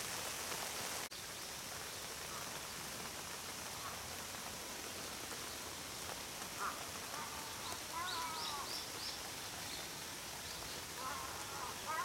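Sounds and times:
rain pattering on an umbrella: 0:00.0 - 0:12.0
birds calling: 0:06.5 - 0:12.0.

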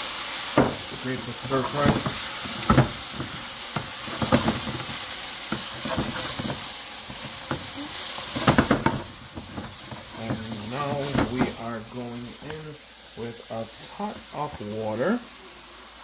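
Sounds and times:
vegetables sizzling in frying pan: 0:00.0 - 0:16.0
spatula scraping and knocking pan: 0:00.5 - 0:12.6.

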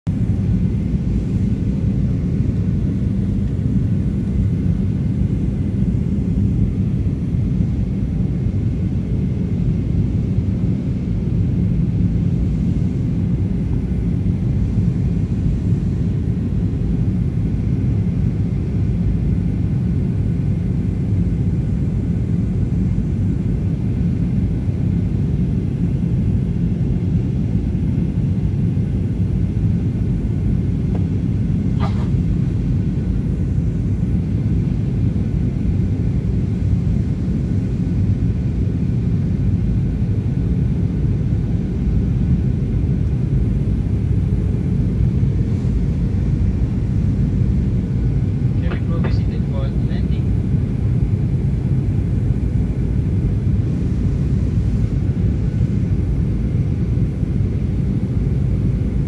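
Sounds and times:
faint constant hum: 0:00.1 - 0:59.0
jet engine drone in cabin: 0:00.1 - 0:59.0.

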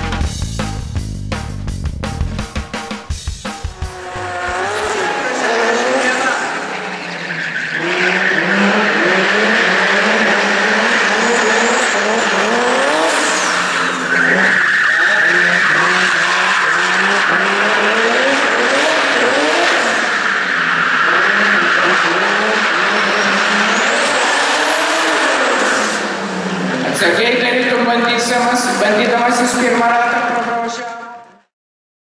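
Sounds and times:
car engine revving: 0:00.0 - 0:30.6
tyres squealing: 0:04.2 - 0:17.9.

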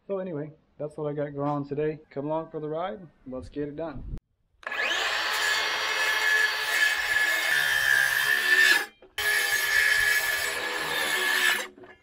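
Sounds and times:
circular saw cutting timber: 0:04.6 - 0:11.8.

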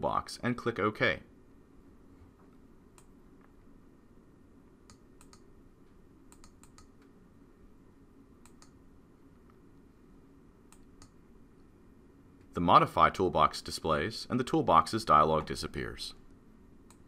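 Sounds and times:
low room hum: 0:00.0 - 0:17.0
computer mouse clicks: 0:02.9 - 0:03.2, 0:04.9 - 0:05.5, 0:06.3 - 0:07.1, 0:08.4 - 0:08.8, 0:10.7 - 0:11.2.

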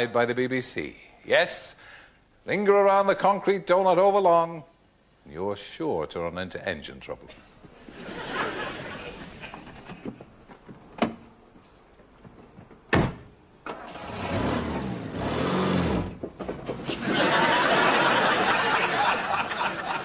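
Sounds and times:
car engine revving: 0:14.0 - 0:16.2.

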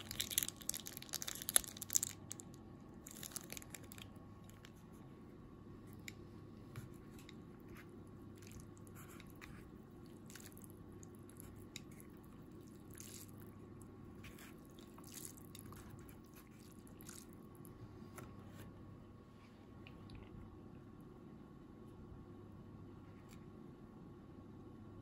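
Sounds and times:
low room hum: 0:00.0 - 0:25.0
chopsticks stirring wet noodles: 0:06.0 - 0:13.5, 0:14.2 - 0:17.4.

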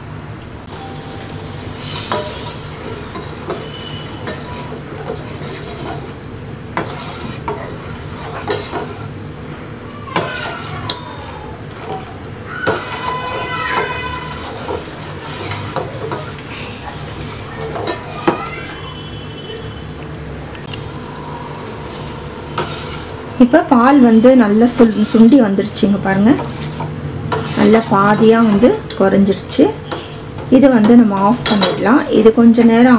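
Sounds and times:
ladle clinking and scraping pan: 0:01.5 - 0:06.2, 0:06.8 - 0:09.1, 0:12.6 - 0:18.4, 0:24.6 - 0:25.4, 0:26.4 - 0:29.0.

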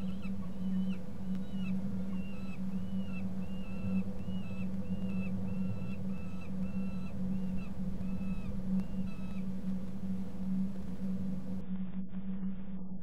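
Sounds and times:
falcon whining begging call: 0:00.0 - 0:09.5
steady low hum: 0:00.0 - 0:13.0.

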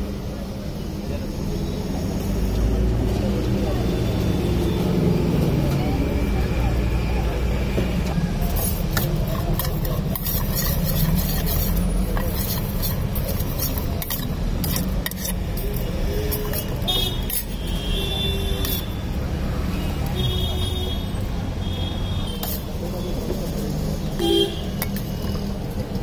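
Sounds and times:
spoon scraping steel bowl: 0:08.3 - 0:19.2, 0:22.3 - 0:22.8, 0:24.1 - 0:25.5.

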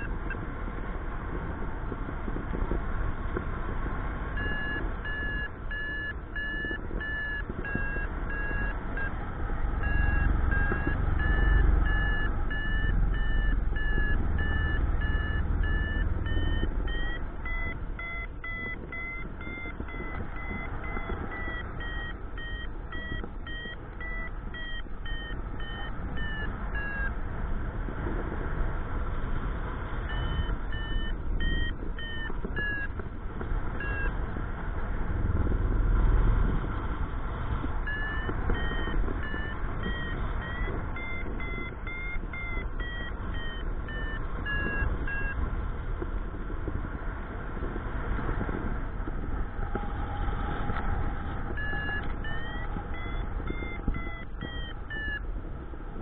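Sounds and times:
variometer beeping in quick pulses: 0:04.4 - 0:27.2, 0:30.0 - 0:33.0, 0:33.8 - 0:34.2, 0:37.8 - 0:45.4, 0:50.7 - 0:55.5.

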